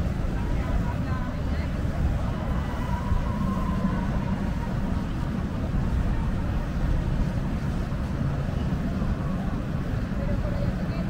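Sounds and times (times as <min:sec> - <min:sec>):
low city waterfront rumble: 0:00.0 - 0:11.0.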